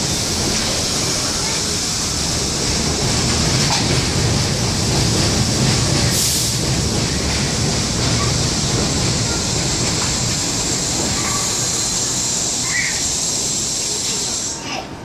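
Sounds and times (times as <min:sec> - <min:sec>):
train constant hiss: 0:00.0 - 0:15.0
train wheels rumbling on rail: 0:00.0 - 0:15.0
sharp air hiss: 0:09.3 - 0:14.7.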